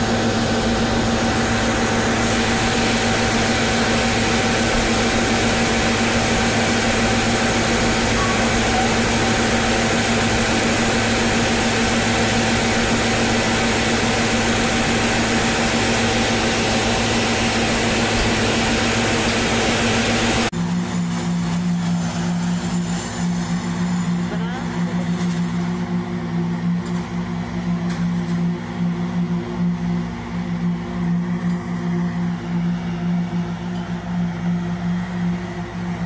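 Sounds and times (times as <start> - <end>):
paving machine engine droning: 0.0 - 36.0.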